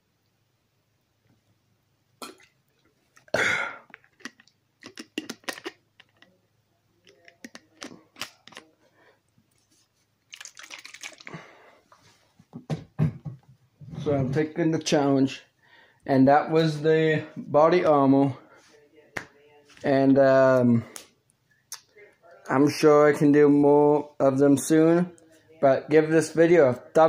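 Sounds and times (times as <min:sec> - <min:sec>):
plastic bottle crackling: 0:03.9 - 0:06.3, 0:10.3 - 0:11.4.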